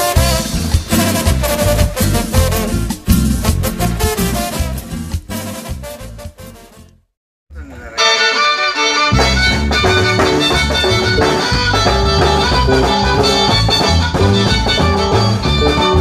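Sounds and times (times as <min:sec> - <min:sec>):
live band playing: 0:00.0 - 0:06.6, 0:07.9 - 0:16.0
electric bass: 0:00.0 - 0:16.0
violin melody: 0:08.0 - 0:16.0.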